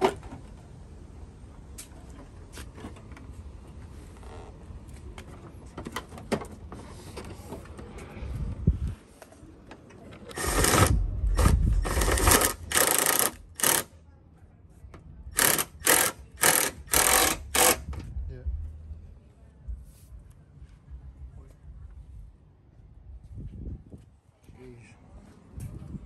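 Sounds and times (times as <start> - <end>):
hand ratchet clicking: 10.3 - 13.9, 15.4 - 17.8.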